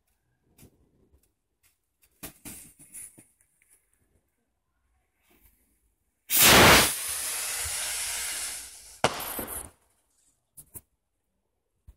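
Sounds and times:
firework rocket launch hiss: 0:06.3 - 0:09.7
firework bang and crackling: 0:06.3 - 0:09.8.

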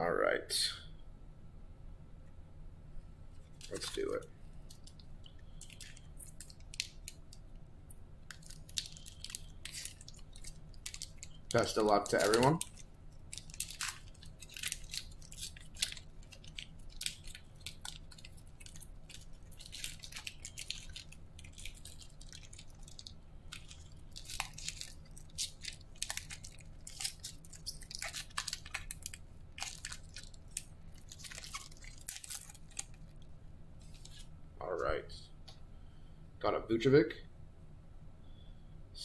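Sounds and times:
foil wrapper crinkling: 0:03.4 - 0:07.5, 0:08.3 - 0:34.3.

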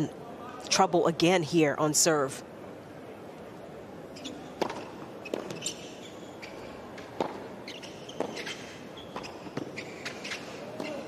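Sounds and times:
shoes squeaking on court: 0:04.1 - 0:11.0
tennis racket hitting ball: 0:07.0 - 0:08.6.

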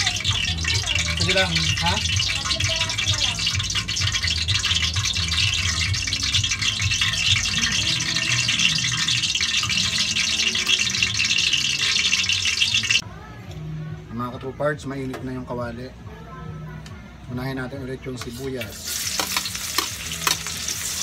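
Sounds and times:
oil hissing and crackling: 0:00.0 - 0:13.0, 0:18.2 - 0:21.0.

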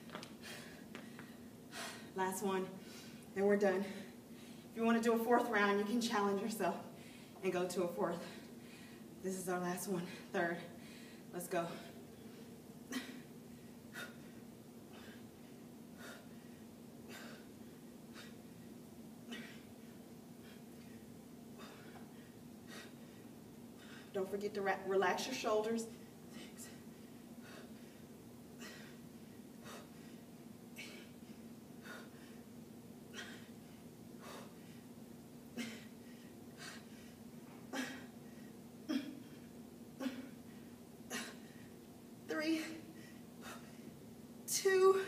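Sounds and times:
woman breathing sharply: 0:00.4 - 0:02.2, 0:06.9 - 0:07.4, 0:08.2 - 0:09.1, 0:10.1 - 0:18.7, 0:20.4 - 0:24.2, 0:25.9 - 0:32.5, 0:33.1 - 0:34.9.

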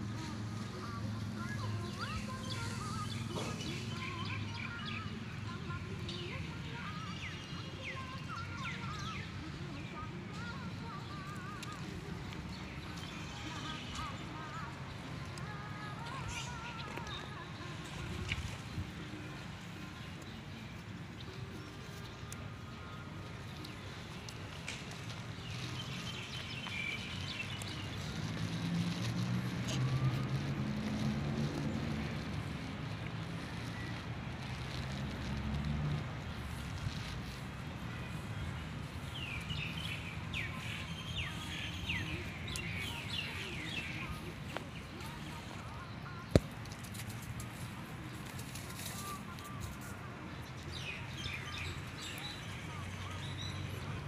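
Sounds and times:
motor vehicle engine hum: 0:10.8 - 0:48.6.

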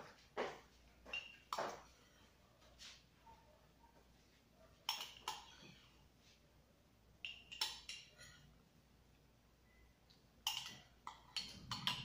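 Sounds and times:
metal spoon clinking on mug: 0:04.9 - 0:05.6, 0:07.2 - 0:08.5, 0:10.4 - 0:12.0.

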